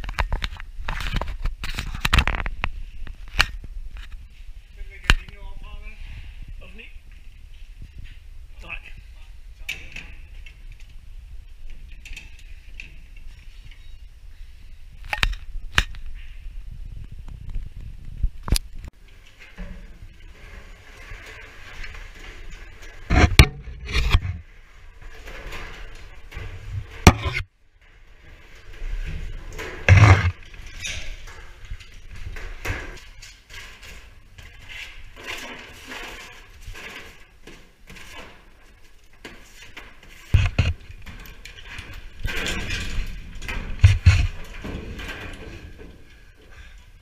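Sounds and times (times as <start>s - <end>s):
knocks and scraping in metal duct: 18.5s - 47.0s.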